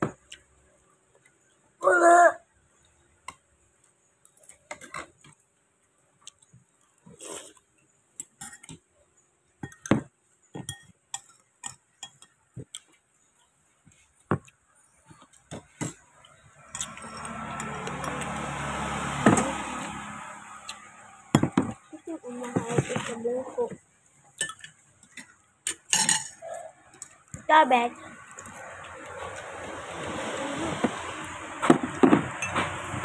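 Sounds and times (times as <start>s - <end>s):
spoon clinking on ceramic bowl: 24.4s - 24.8s.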